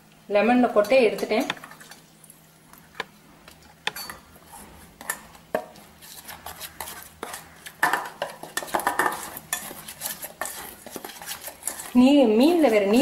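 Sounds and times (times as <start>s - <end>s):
metal spoon scraping metal bowl: 3.9s - 13.0s.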